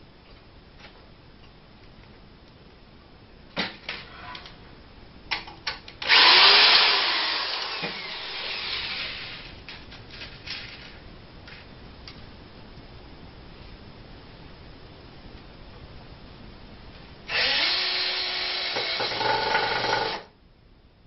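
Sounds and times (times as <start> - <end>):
cordless drill driving a screw: 6.0 - 9.5, 17.3 - 20.3.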